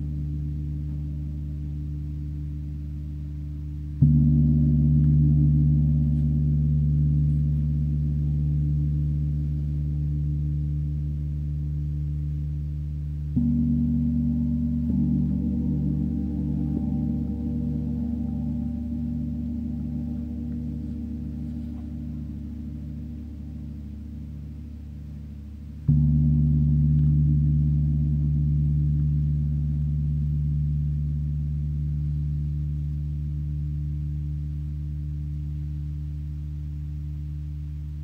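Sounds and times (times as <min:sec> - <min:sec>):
gong struck with soft mallet: 0:13.4 - 0:30.7.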